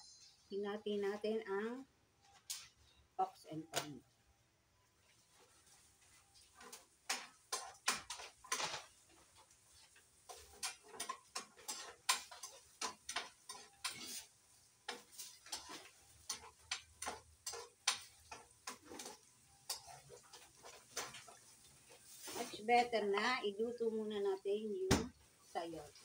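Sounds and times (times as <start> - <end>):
metal utensil scraping a pan: 5.3 - 22.9.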